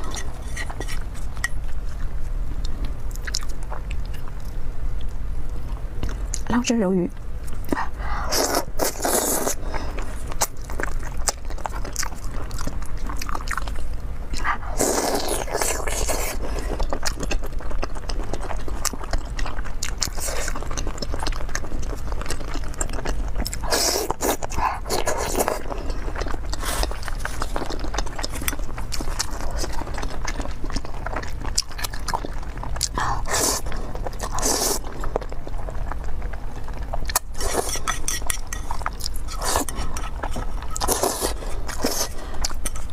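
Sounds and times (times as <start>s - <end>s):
noodles slurped: 7.8s - 11.2s, 22.1s - 36.0s, 36.7s - 42.9s.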